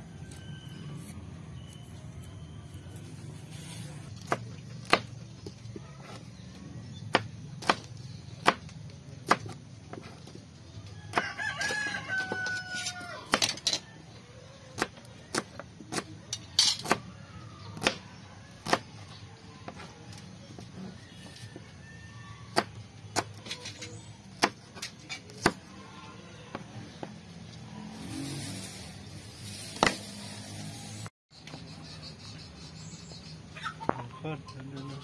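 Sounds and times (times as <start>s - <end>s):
rooster crowing: 10.9s - 14.4s, 20.9s - 22.6s.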